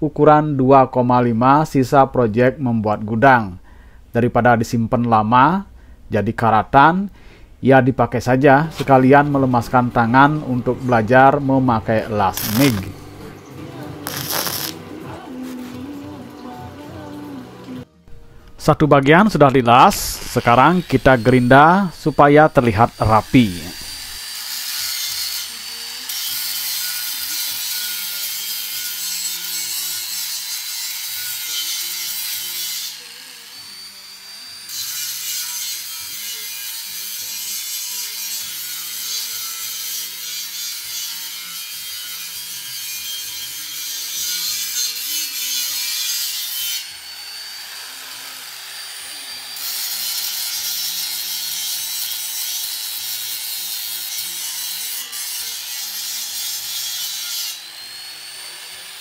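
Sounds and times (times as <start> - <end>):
angle grinder grinding metal: 8.2 - 17.9, 18.6 - 59.0
grinder motor spinning: 9.2 - 16.0, 19.9 - 28.7, 46.8 - 53.9.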